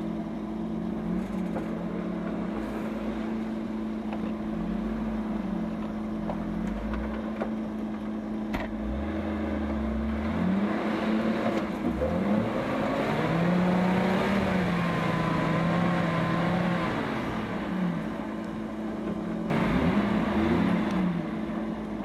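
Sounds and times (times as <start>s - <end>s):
off-road vehicle engine revving: 8.6s - 18.8s, 19.4s - 22.0s.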